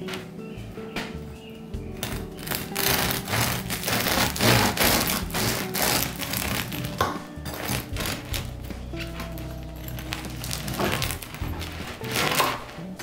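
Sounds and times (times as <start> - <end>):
background music: 0.0 - 13.0
bread knife sawing crust: 2.1 - 7.0.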